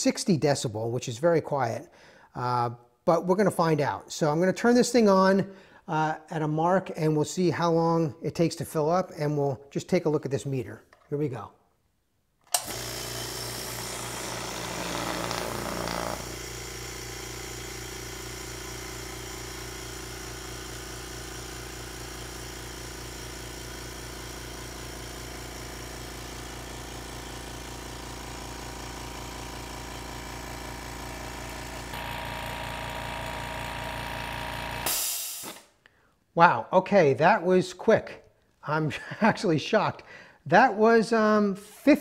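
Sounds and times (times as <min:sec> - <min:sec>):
air compressor humming: 0:12.4 - 0:35.8.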